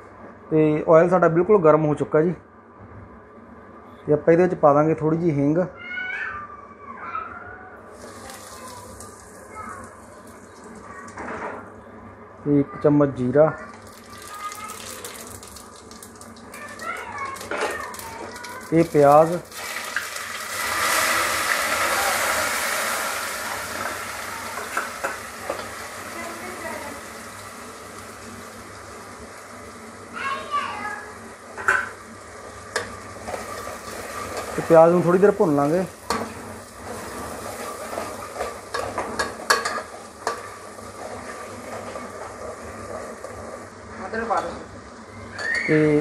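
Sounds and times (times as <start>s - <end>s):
onions sizzling in hot oil: 7.9s - 11.2s, 13.7s - 46.0s.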